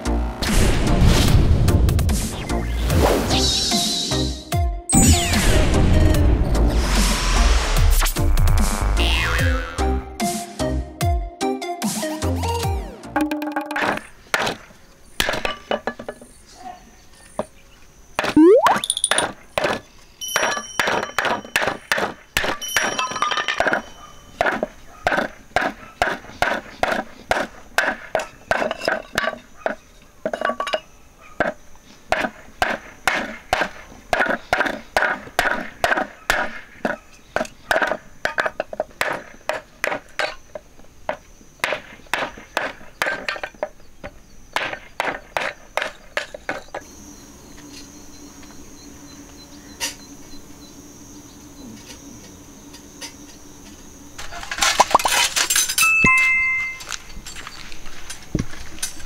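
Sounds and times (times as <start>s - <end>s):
hatchet chopping wooden boards: 13.8s - 15.5s, 20.8s - 22.6s, 24.4s - 29.7s, 31.4s - 40.4s, 41.1s - 46.7s.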